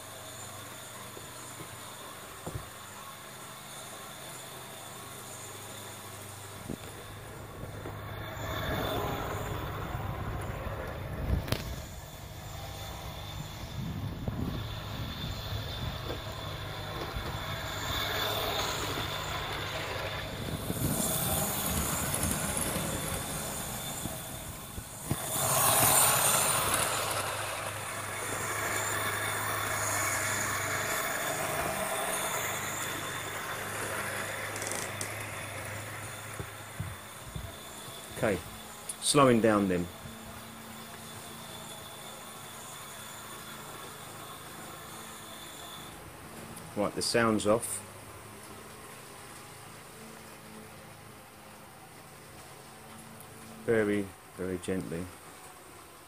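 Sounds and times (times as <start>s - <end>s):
toy train motor hum: 0.0s - 56.0s
toy train sound effect: 14.6s - 46.1s.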